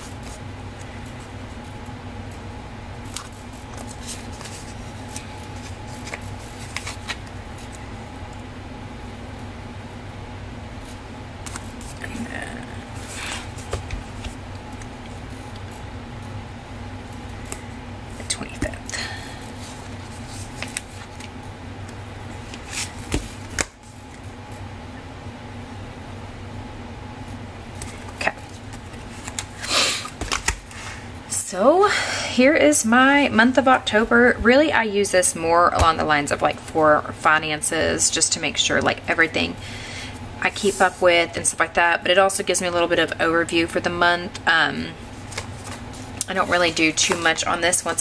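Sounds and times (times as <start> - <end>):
steady low hum: 0.0 - 48.0
paper pages rustling: 3.0 - 7.8, 11.4 - 12.1, 13.0 - 15.8, 19.5 - 21.4, 22.4 - 24.3, 27.8 - 30.9, 45.0 - 48.0.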